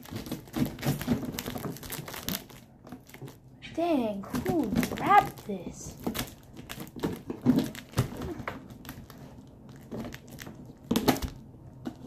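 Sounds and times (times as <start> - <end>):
tape crinkling: 0.0 - 12.0.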